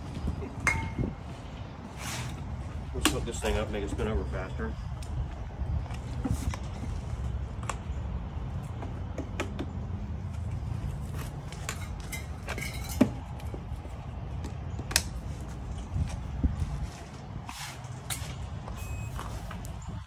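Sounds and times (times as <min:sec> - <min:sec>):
metal tools clinking: 0:11.6 - 0:13.3.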